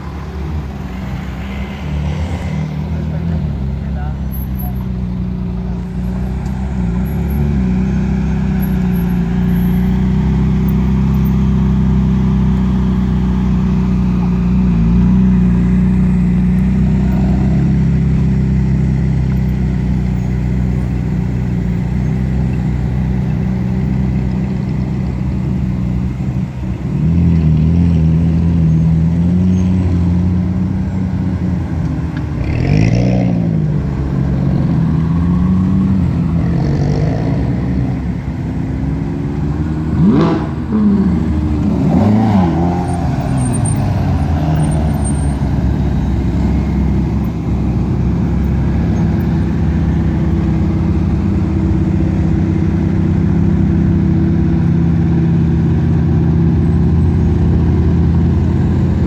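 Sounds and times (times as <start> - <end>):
sports car engines at low speed: 0.0 - 59.0
engine rev: 31.6 - 59.0.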